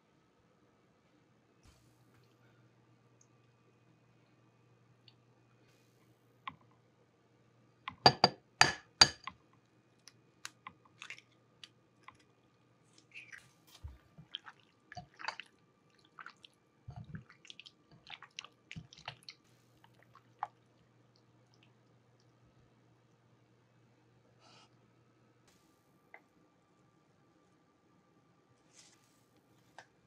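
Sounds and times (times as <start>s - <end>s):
hand squishing wet raw meat: 10.0s - 20.7s.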